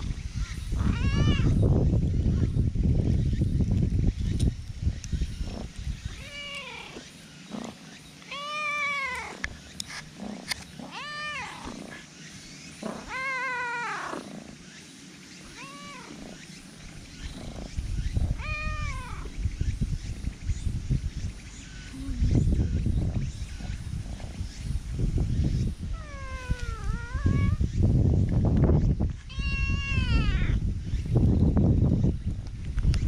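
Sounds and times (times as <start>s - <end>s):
cat meowing: 0.8s - 1.6s, 6.2s - 7.0s, 8.3s - 9.4s, 15.6s - 16.2s, 18.4s - 19.3s, 26.0s - 27.6s, 29.3s - 30.6s
low rumbling noise: 15.5s - 33.0s.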